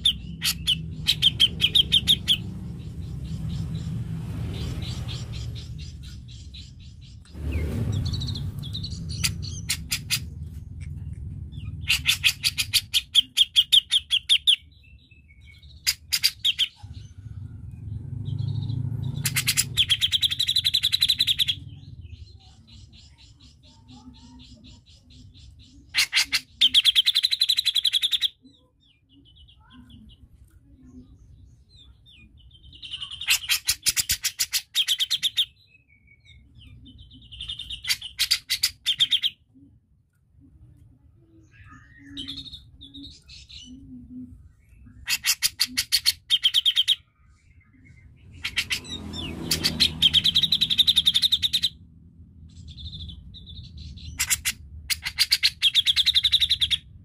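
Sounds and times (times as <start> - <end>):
low rumble: 0.0 - 23.5, 47.2 - 57.0.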